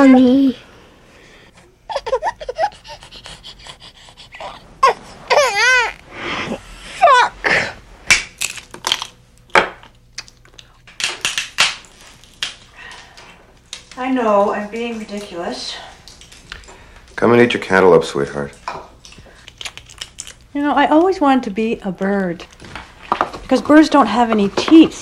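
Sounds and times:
giggling laughter: 1.9 - 3.2
shells picked apart: 8.1 - 9.2
walnuts cracked in nutcracker: 8.1 - 12.7, 19.0 - 20.5.

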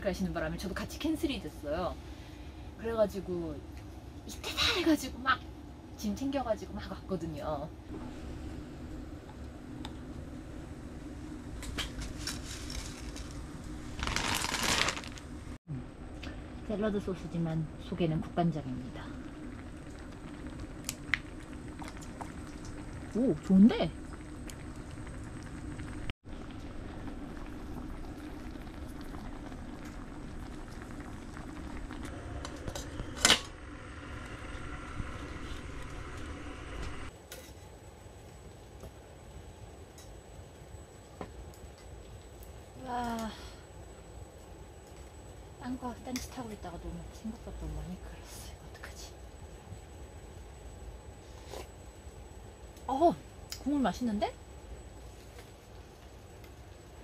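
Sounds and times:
soup bubbling in a pot: 16.3 - 37.1.

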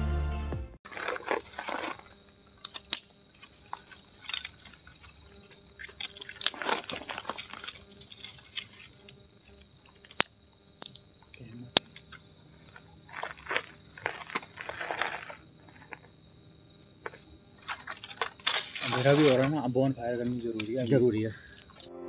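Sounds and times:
twigs rustling and crunching: 0.8 - 21.9
sticks snapping: 0.9 - 12.2, 17.0 - 19.5, 21.4 - 21.9.

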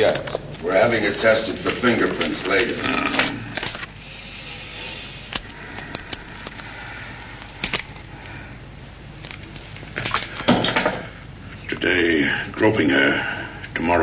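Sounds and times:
paper rustling: 0.0 - 3.9
soundtrack hiss: 0.6 - 14.0.

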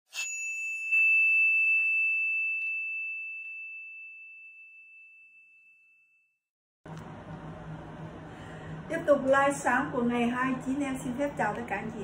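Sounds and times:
high bell-like chime: 0.1 - 6.4.

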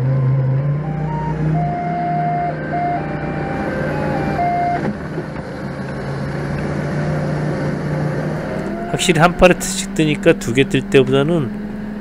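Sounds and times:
reversing alarm tones: 0.0 - 4.9, 8.4 - 10.7
forklift engine running: 0.0 - 12.0.

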